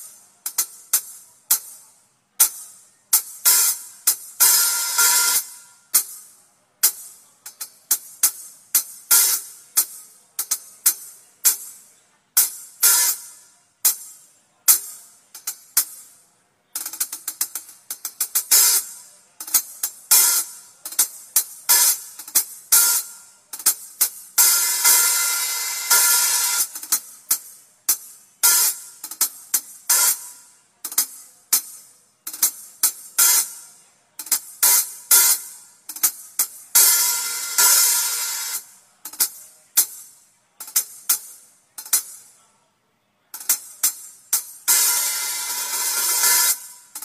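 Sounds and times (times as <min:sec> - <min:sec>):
hi-hat hits: 0:00.0 - 0:42.4, 0:43.4 - 0:47.0
cymbal ringing: 0:03.5 - 0:05.7, 0:20.1 - 0:29.0, 0:36.5 - 0:38.7, 0:43.6 - 0:47.0.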